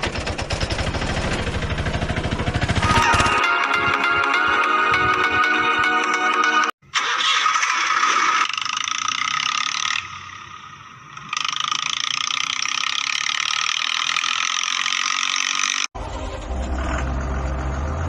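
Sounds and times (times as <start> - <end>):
music: 2.8 - 6.7
plastic toy tractor rattling on dirt: 7.0 - 10.1, 11.2 - 15.9.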